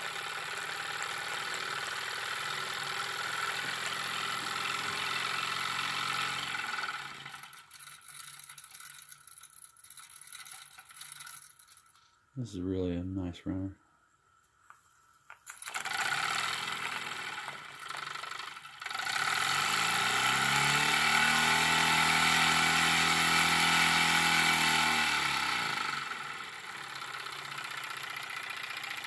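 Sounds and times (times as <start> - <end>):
toy steam engine running: 0.0 - 12.0, 15.4 - 29.0.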